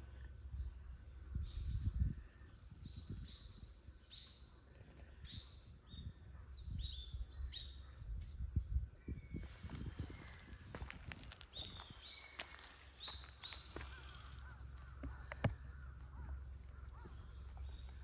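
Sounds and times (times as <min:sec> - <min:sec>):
songbird singing: 0:00.0 - 0:18.0.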